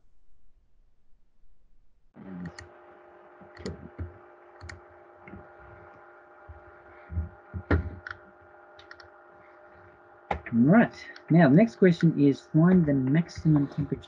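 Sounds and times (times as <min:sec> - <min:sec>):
steady electrical hum: 0:02.2 - 0:14.0
computer mouse clicks: 0:03.5 - 0:05.4, 0:07.6 - 0:08.2, 0:08.8 - 0:09.1
soft low thumps: 0:06.4 - 0:08.1, 0:12.6 - 0:14.0.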